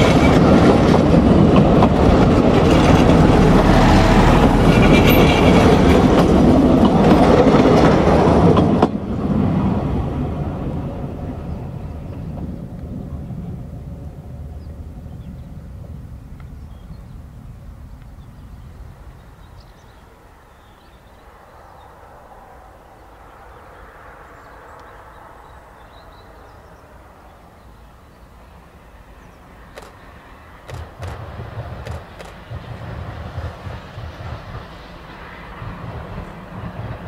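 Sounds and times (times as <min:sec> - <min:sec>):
steam train rumbling: 0:00.0 - 0:37.0
sharp clicks: 0:29.8 - 0:30.0, 0:30.7 - 0:32.6.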